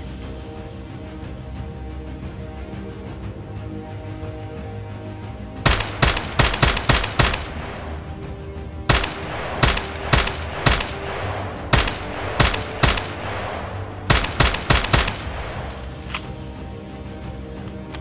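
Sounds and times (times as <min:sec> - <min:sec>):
background music: 0:00.0 - 0:18.0
rifle gunshots with echo: 0:05.7 - 0:08.0, 0:08.9 - 0:15.8.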